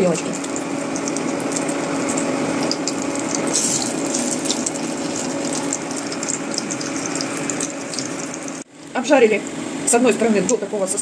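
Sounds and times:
bread sizzling in hot oil: 0.0 - 8.7.

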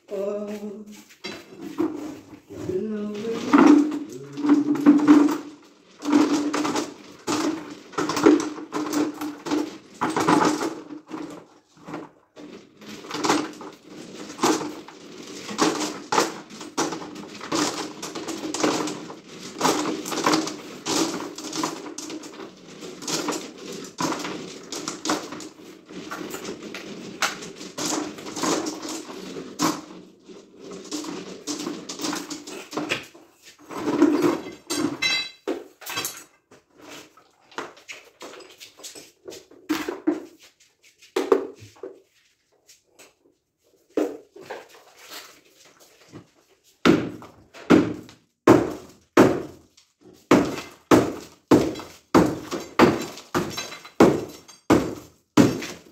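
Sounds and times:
hand tools knocking on concrete: 50.3 - 55.9.

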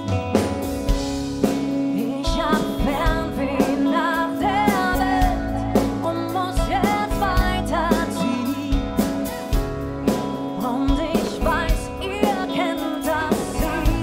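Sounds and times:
drum kit hitting: 0.0 - 4.0, 13.1 - 14.0
pop-rock band playing: 0.0 - 14.0
woman singing lead: 1.6 - 14.0.

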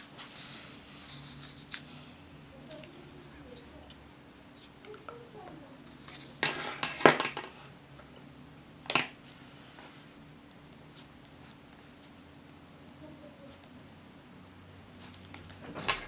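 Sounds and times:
paper rustling: 5.9 - 7.7.

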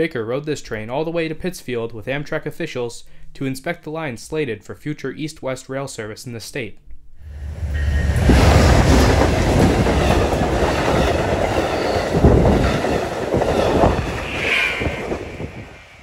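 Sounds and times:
diesel locomotive rumbling past: 7.2 - 16.0
train wheels clacking over rail joints: 8.0 - 14.3.

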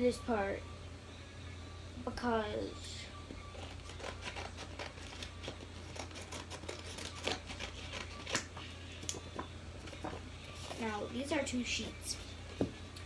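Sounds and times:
paper rustling: 3.6 - 8.5.

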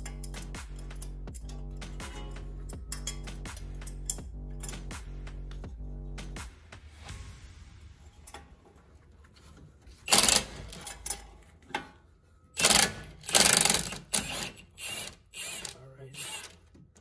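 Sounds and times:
impact wrench hammering: 10.1 - 10.9, 12.6 - 16.6.

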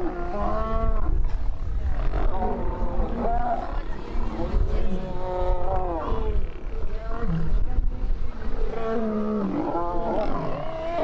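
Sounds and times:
lions snarling and growling: 8.4 - 11.0.

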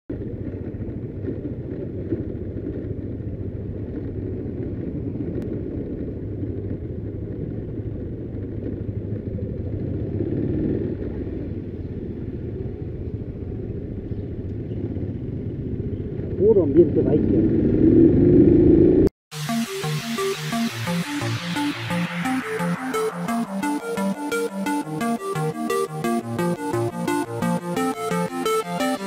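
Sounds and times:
motorcycle engine rumble: 0.1 - 19.1.

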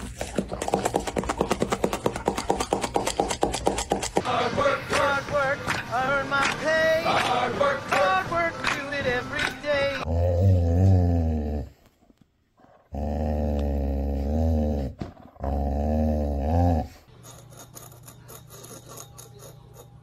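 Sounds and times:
dog growling: 10.0 - 11.8, 12.6 - 17.0.

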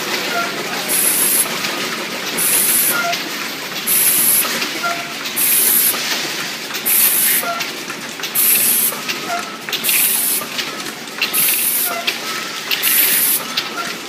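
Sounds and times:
machine clattering: 0.0 - 14.0
compressed air hiss: 3.9 - 4.5, 5.4 - 6.0, 6.9 - 7.4, 8.4 - 8.9, 12.8 - 13.4.

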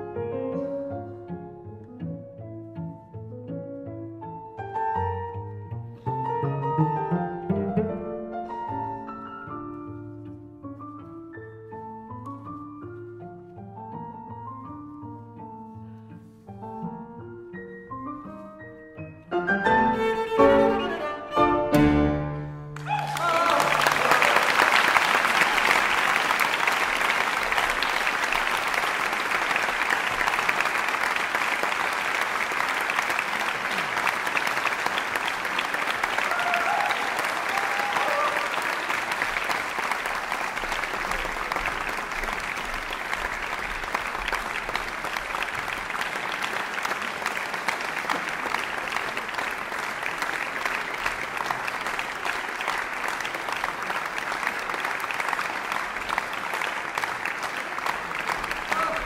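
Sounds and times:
audience applauding: 22.8 - 59.0.

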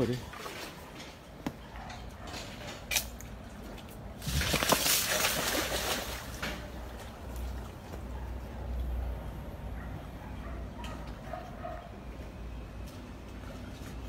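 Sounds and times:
crocodiles splashing in water: 4.2 - 7.8.

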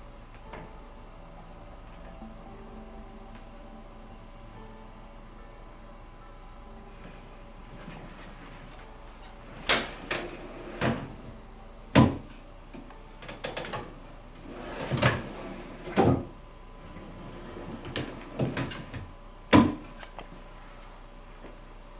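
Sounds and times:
drawers sliding: 7.7 - 8.8, 9.5 - 11.2, 14.4 - 19.1
drawers knocking shut: 12.0 - 12.3.

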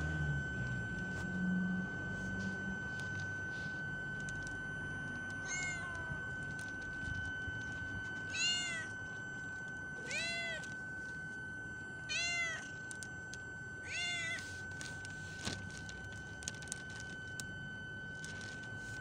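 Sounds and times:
steady high-pitched whine: 0.0 - 19.0
cat meowing: 5.4 - 6.2, 8.3 - 9.0, 10.0 - 10.7, 12.1 - 12.8, 13.8 - 14.4.

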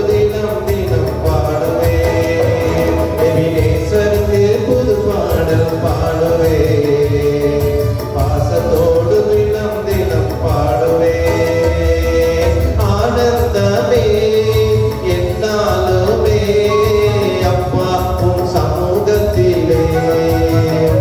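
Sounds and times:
instrumental backing with beat: 0.0 - 21.0
man singing worship song: 0.0 - 21.0.

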